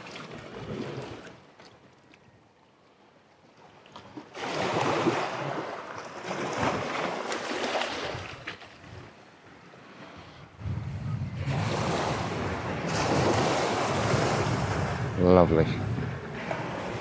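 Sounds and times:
waves splashing over rocks: 0:04.3 - 0:08.6, 0:11.4 - 0:17.0.

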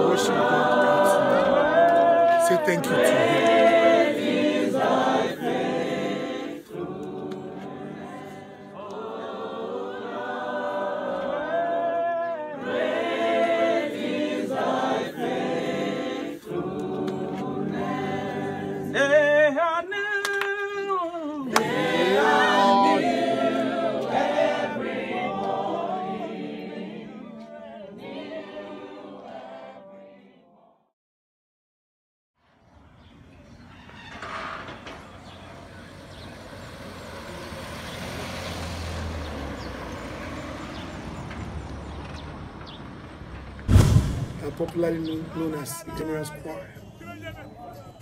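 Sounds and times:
choir singing unaccompanied: 0:00.0 - 0:30.9.

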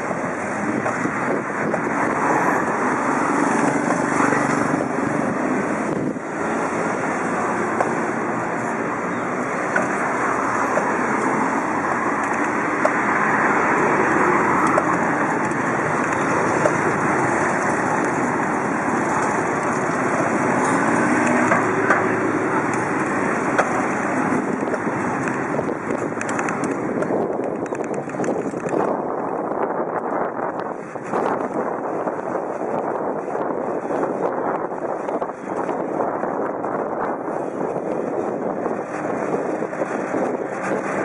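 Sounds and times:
street traffic: 0:00.0 - 0:41.0
wind buffeting microphone: 0:00.0 - 0:41.0
small clicks: 0:26.1 - 0:28.9.

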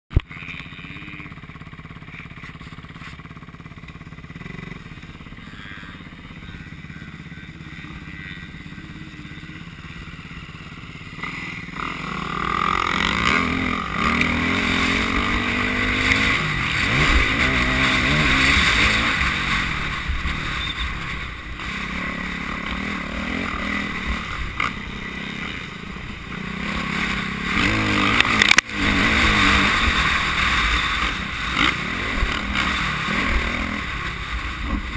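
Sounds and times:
motocross bike engine revving: 0:00.1 - 0:34.9.

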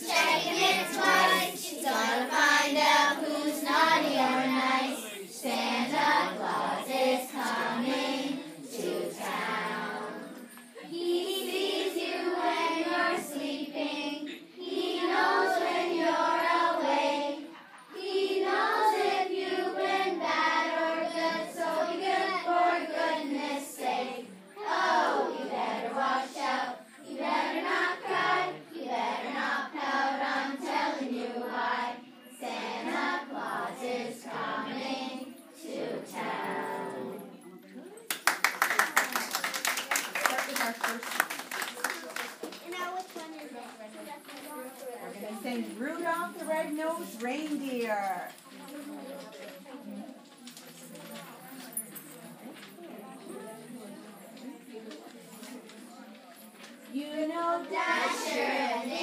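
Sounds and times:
group singing a christmas song: 0:00.0 - 0:37.6, 0:56.9 - 0:59.0.

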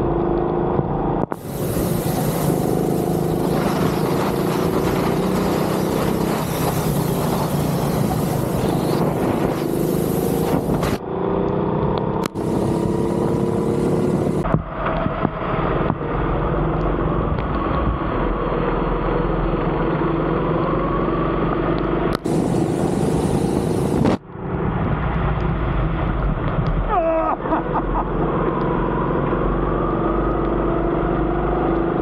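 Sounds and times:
steady hiss: 0:01.3 - 0:11.0
go-kart engines racing: 0:01.4 - 0:22.4.

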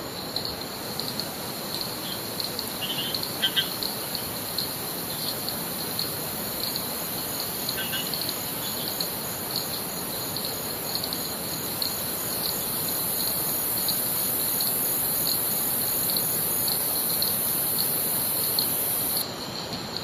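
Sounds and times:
insect chirps: 0:00.0 - 0:20.0
insects droning: 0:00.0 - 0:20.0.

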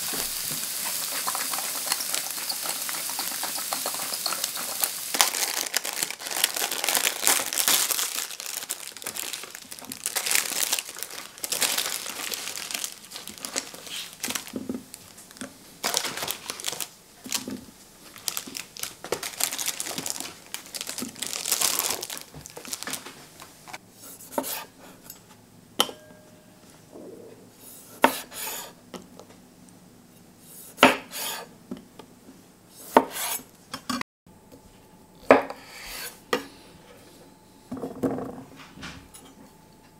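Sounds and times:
plastic packaging crinkling: 0:00.0 - 0:23.8.

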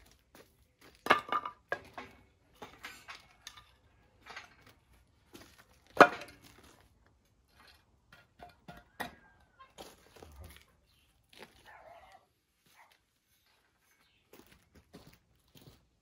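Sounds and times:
hard objects clanking and knocking: 0:01.0 - 0:04.8, 0:05.9 - 0:06.7, 0:07.5 - 0:09.4.

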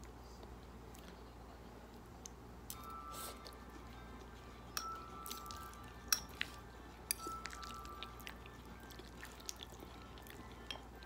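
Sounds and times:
utensils clinking on dishware: 0:04.8 - 0:06.5, 0:07.1 - 0:08.1.

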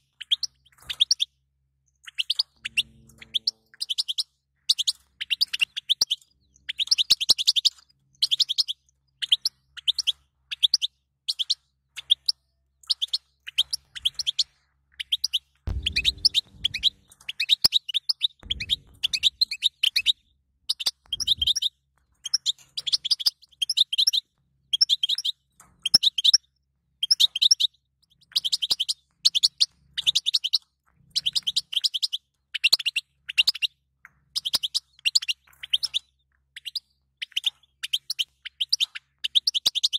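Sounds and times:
goldfinch twittering: 0:02.1 - 0:11.6, 0:15.0 - 0:24.2
soft low thumps: 0:15.7 - 0:17.1, 0:18.4 - 0:20.2.

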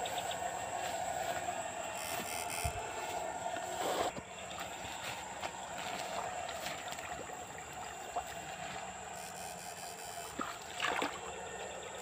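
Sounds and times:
water trickling: 0:04.5 - 0:09.2
poles splashing into water: 0:10.3 - 0:11.3.

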